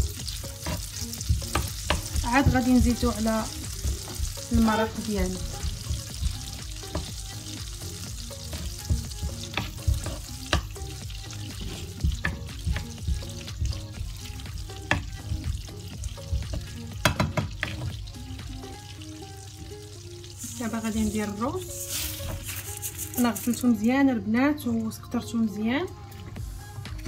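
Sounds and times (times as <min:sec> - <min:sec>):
butter sizzling in a pan: 0:00.0 - 0:23.8
wooden spatula knocking on pan: 0:00.6 - 0:07.2, 0:08.5 - 0:10.8, 0:11.5 - 0:18.0.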